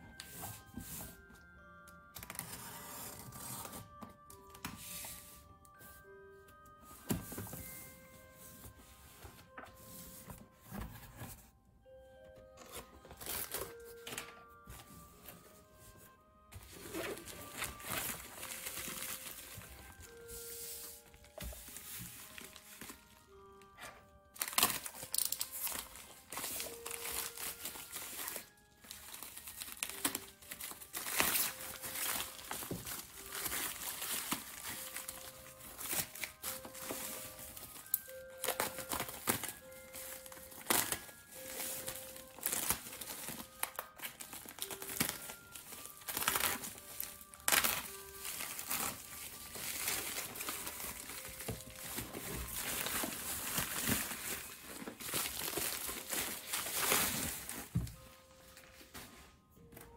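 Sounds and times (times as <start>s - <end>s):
plastic wrap crinkling: 16.6s - 59.9s.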